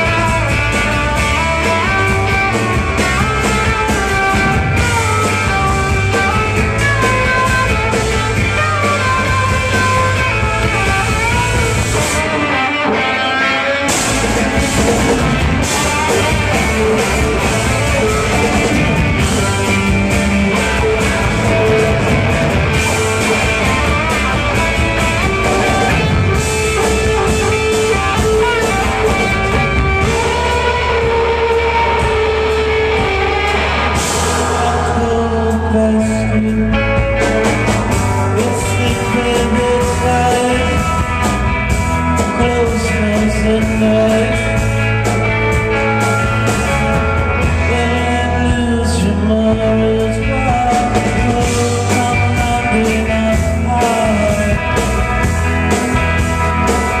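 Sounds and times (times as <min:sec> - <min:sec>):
electric guitar lead: 0:00.0 - 0:57.0
rock band playing: 0:00.0 - 0:57.0.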